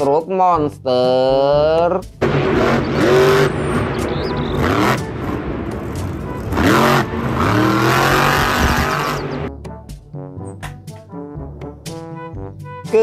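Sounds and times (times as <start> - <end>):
truck engine revving hard: 2.2 - 9.5.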